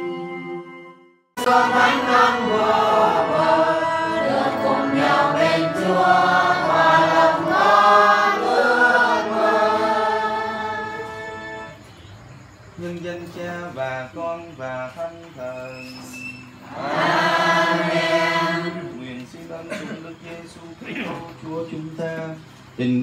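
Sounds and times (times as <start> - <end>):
choir singing: 0.0 - 0.7, 1.4 - 11.8, 16.6 - 19.8.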